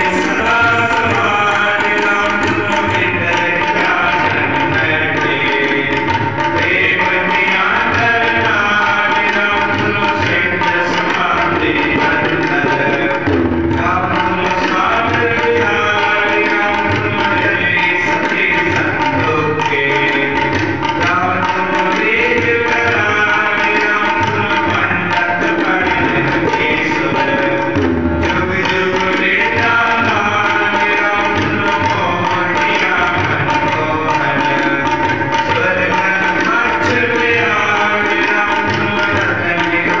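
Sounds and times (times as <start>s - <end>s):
harmonium chords: 0.0s - 4.8s, 27.6s - 31.9s
person singing: 0.0s - 5.9s, 28.3s - 31.4s
tabla rhythm: 0.0s - 40.0s.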